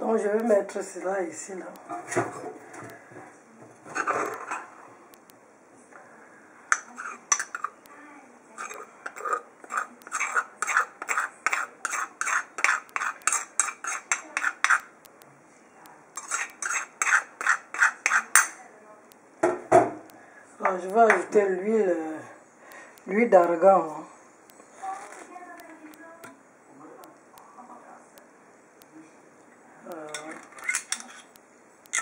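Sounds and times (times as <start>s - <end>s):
metal spoon scraping stone mortar: 6.7s - 7.8s, 8.6s - 14.9s, 16.2s - 18.6s, 30.1s - 32.0s.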